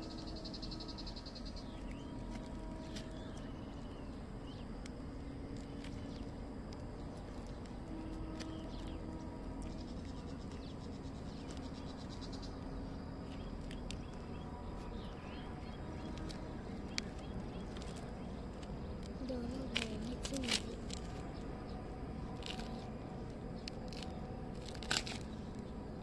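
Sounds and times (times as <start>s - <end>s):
bird chirps: 0.0s - 4.7s, 8.0s - 18.5s.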